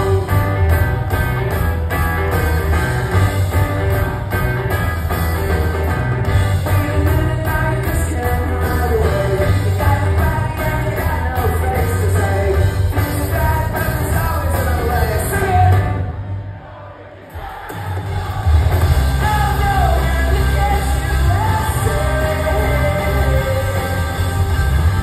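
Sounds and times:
man singing: 0:00.0 - 0:00.6, 0:06.6 - 0:16.1, 0:19.1 - 0:24.6
rock band playing live: 0:00.0 - 0:16.6, 0:17.3 - 0:25.0.

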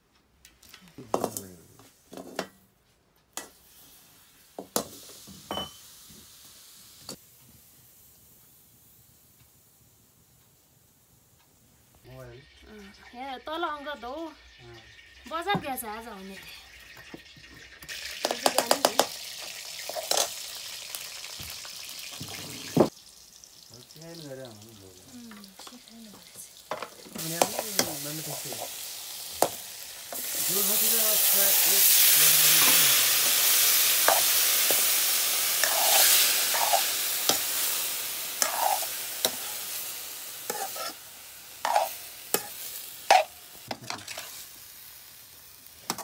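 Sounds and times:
faint steady hiss: 0:00.0 - 0:16.8, 0:18.2 - 0:46.0
food sizzling in hot oil: 0:03.4 - 0:46.0
metal pan clanking and scraping: 0:38.4 - 0:39.5, 0:40.5 - 0:41.0, 0:41.6 - 0:44.4.

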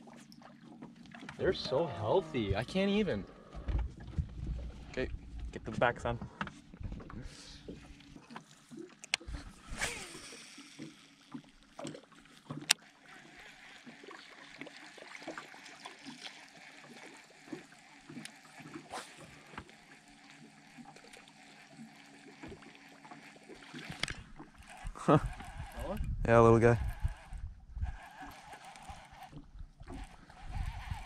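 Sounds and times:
waves lapping against boat hull: 0:00.0 - 0:31.0
fishing reel clicks and knocks: 0:09.0 - 0:31.0.

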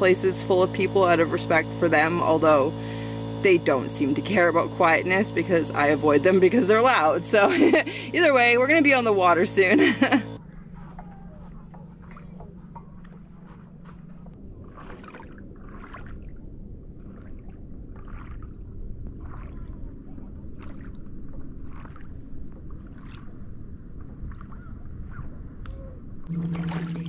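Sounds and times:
steady low rumble: 0:00.0 - 0:27.0
paddle splashing in water: 0:11.7 - 0:23.4, 0:26.3 - 0:27.0.

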